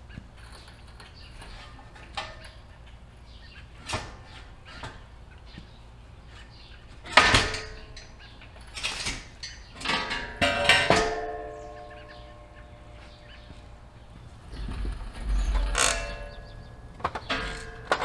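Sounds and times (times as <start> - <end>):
heavy steel parts clanking: 8.7 - 18.0.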